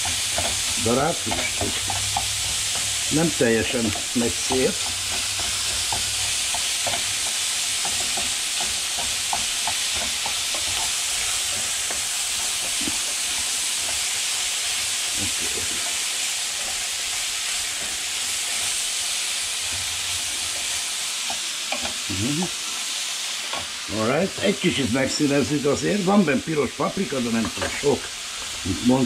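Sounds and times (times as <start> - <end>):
spatula scraping and clicking: 0.0 - 14.9
meat sizzling in a pan: 0.0 - 29.0.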